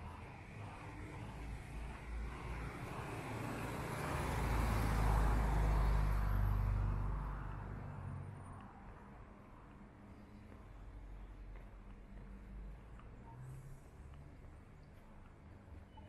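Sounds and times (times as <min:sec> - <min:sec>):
car driving past: 0:00.6 - 0:08.6.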